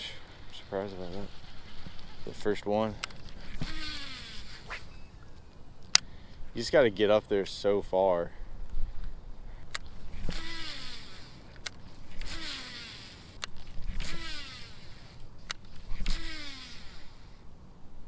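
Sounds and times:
fishing reel spool whirring: 0:03.2 - 0:05.2, 0:09.9 - 0:17.4
reel clicks: 0:09.7 - 0:17.2.

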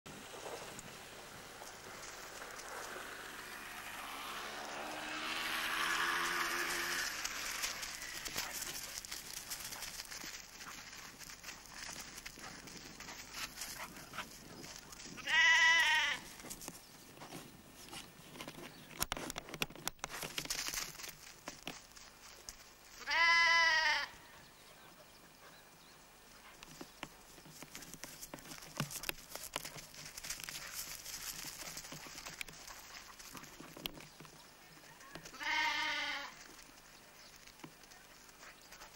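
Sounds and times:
lamb bleating: 0:15.2 - 0:16.3, 0:23.0 - 0:24.2, 0:35.3 - 0:36.4.

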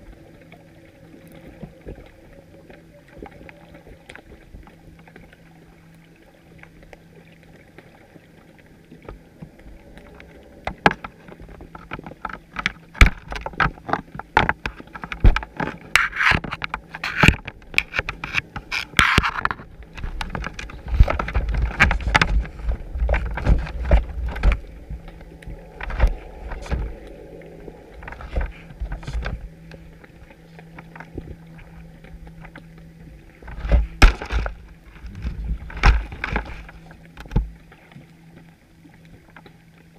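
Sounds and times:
faint low hum: 0:00.0 - 0:39.9
underwater clicks and knocks: 0:08.9 - 0:39.6
heavy low thumps: 0:35.0 - 0:36.0.

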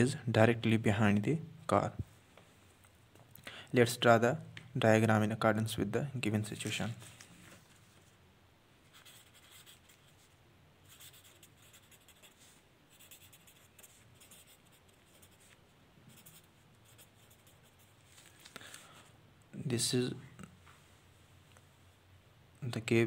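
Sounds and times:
pen scratching on paper: 0:08.9 - 0:10.3, 0:10.9 - 0:18.0.

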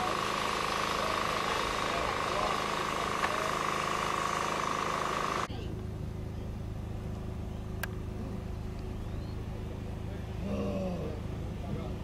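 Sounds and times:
steady hum: 0:00.0 - 0:12.0
steady low drone: 0:00.0 - 0:12.0.

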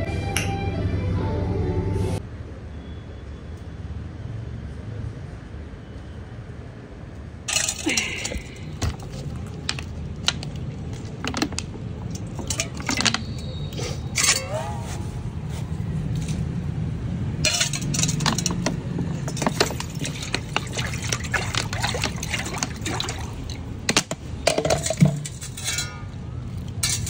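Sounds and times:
metal bowl clinking on tiles: 0:07.5 - 0:10.4, 0:12.1 - 0:14.5, 0:17.4 - 0:23.2, 0:24.5 - 0:27.0
plastic water bottle handled: 0:07.6 - 0:13.3.

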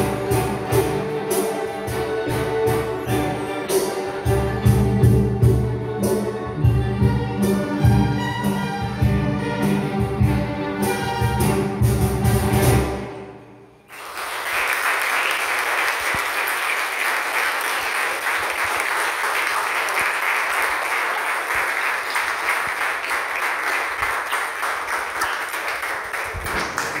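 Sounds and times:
audience applauding: 0:13.9 - 0:27.0.

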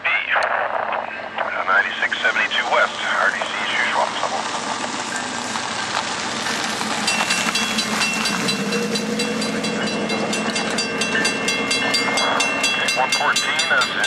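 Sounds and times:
low engine drone: 0:00.0 - 0:14.0
freight train passing: 0:00.9 - 0:14.0
high steady ringing tone: 0:05.0 - 0:14.0.

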